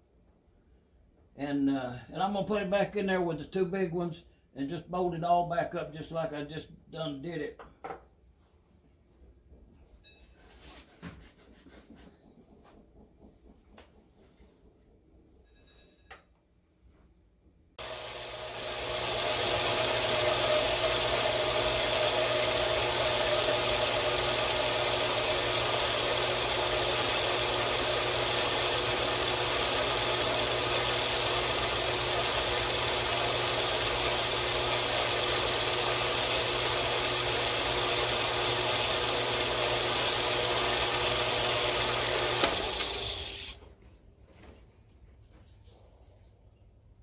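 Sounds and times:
power hacksaw cutting metal: 0:17.8 - 0:43.6.

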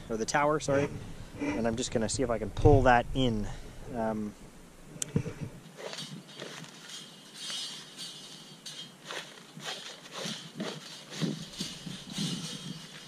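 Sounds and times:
fish tape scraping: 0:05.7 - 0:13.0.

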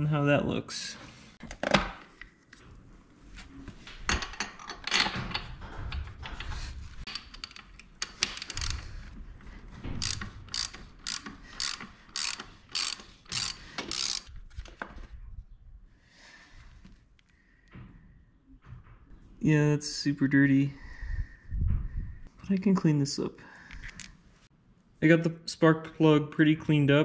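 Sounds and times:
ratchet wrench clicking: 0:07.3 - 0:08.9, 0:10.0 - 0:14.3.

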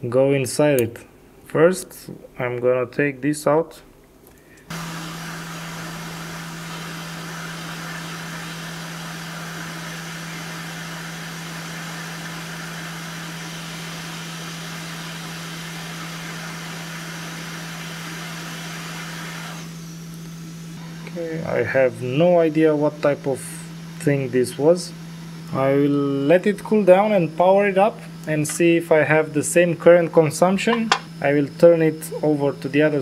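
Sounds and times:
hot air blower rushing: 0:04.7 - 0:29.6.

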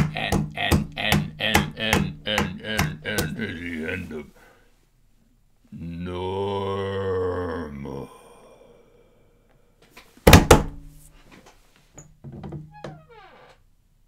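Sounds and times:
loud thumps: 0:00.0 - 0:03.5, 0:10.3 - 0:10.9.

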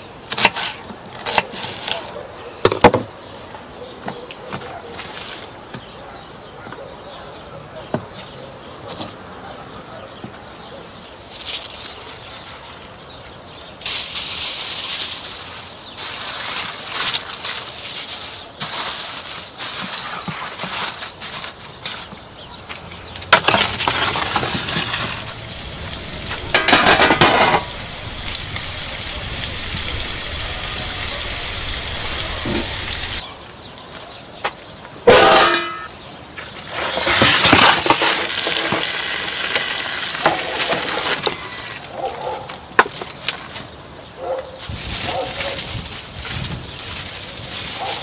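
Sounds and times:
aluminium foil crinkling: 0:00.3 - 0:02.2, 0:04.9 - 0:05.6, 0:11.0 - 0:33.2, 0:36.5 - 0:48.0.

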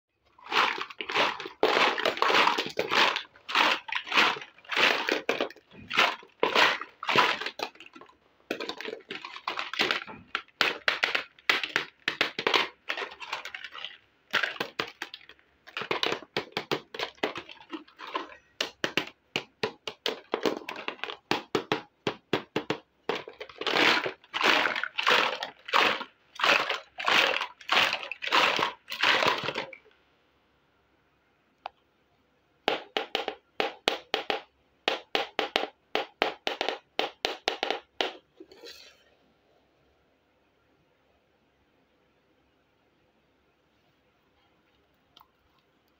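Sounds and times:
plastic packaging rustling: 0:00.3 - 0:29.9
small plastic pieces clicking: 0:00.4 - 0:29.8.

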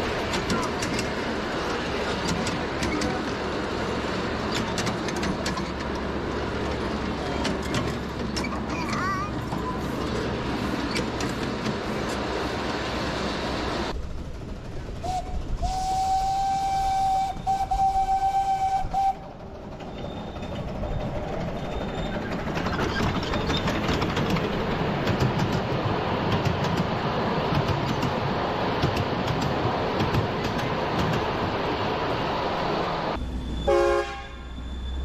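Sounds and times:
miniature locomotive whistle: 0:15.0 - 0:19.2, 0:33.4 - 0:35.0
carriage wheels clicking on rails: 0:19.7 - 0:26.9.

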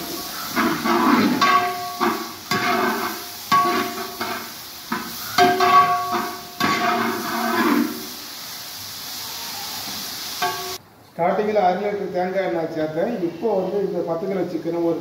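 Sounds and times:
metal ladle scraping pan: 0:00.0 - 0:08.1, 0:10.4 - 0:10.8
onions frying in oil: 0:00.0 - 0:10.8
pan ringing: 0:01.3 - 0:02.9, 0:03.5 - 0:04.2, 0:05.4 - 0:07.0.

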